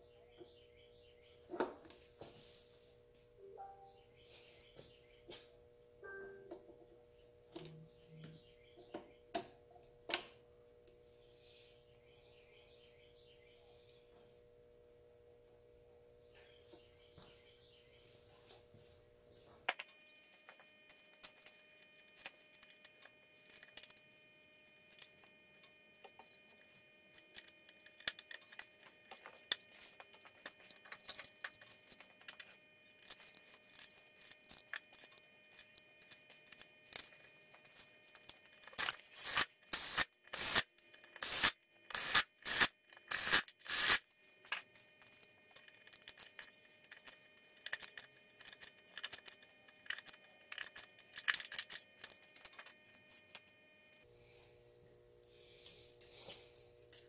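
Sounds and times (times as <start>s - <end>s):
hand ratchet strokes: 38.7s - 44.0s
small metal parts clinking: 45.0s - 52.6s.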